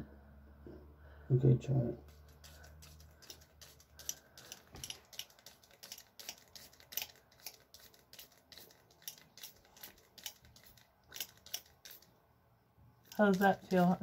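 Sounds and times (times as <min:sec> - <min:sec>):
spray bottle squirting water: 0:02.0 - 0:12.1, 0:13.1 - 0:14.0.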